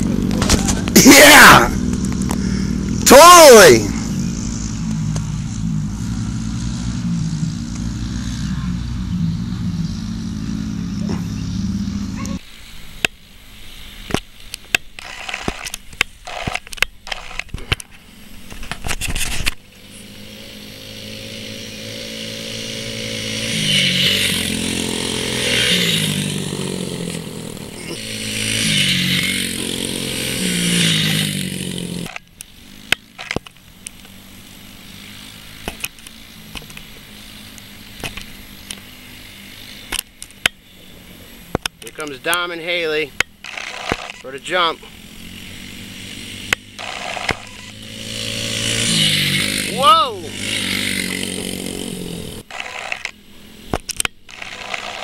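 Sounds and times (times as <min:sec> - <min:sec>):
dirt bike engines: 0:00.0 - 0:55.0
scattered clicks and knocks: 0:14.1 - 0:19.6.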